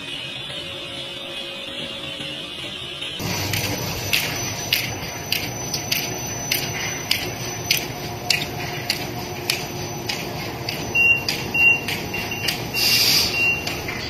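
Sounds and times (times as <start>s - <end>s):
low machine hum: 3.2s - 14.0s
short high electronic beeps: 3.2s - 14.0s.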